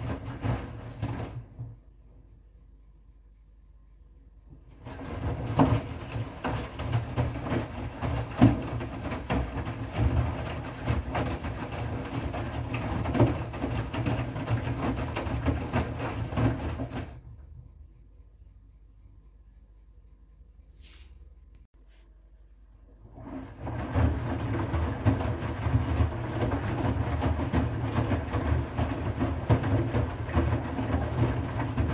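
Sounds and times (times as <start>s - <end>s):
laundry thudding and sloshing: 0.0s - 1.8s, 4.7s - 17.2s, 23.0s - 31.9s
washing machine motor humming: 0.0s - 20.6s, 22.8s - 31.9s.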